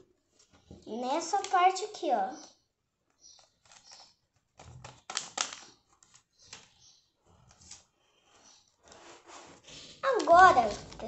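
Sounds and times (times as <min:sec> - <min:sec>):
paper rustling and crinkling: 0:03.4 - 0:08.0, 0:08.8 - 0:11.0.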